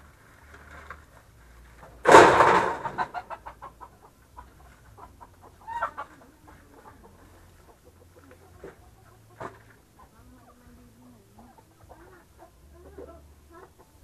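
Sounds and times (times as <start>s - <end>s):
chicken clucking: 1.4s - 14.0s
chicken squawking: 2.7s - 9.4s.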